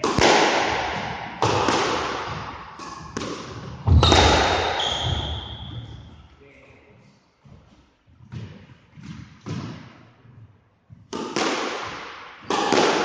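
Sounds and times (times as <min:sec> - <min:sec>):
squash ball hits echoing: 0:00.0 - 0:06.2, 0:08.3 - 0:10.1, 0:11.0 - 0:13.0.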